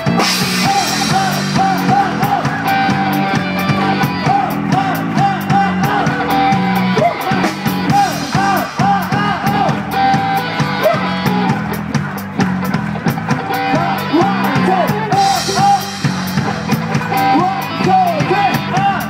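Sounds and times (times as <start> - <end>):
drums and cymbal strokes: 0.0 - 19.0
guitars: 0.0 - 19.0
live rock band: 0.0 - 19.0.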